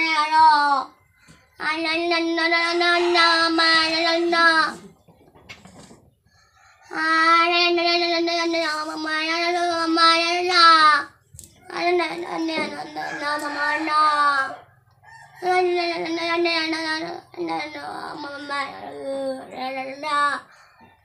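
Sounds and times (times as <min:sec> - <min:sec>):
boy singing long notes: 0:00.0 - 0:00.9, 0:01.6 - 0:04.8, 0:15.4 - 0:20.4.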